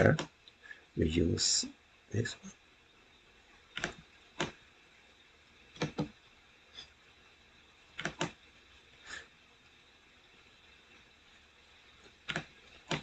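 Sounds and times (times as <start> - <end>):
faint room noise: 0.0 - 13.0
computer mouse clicking: 3.7 - 4.6, 5.8 - 6.1, 8.0 - 8.4, 12.2 - 13.0.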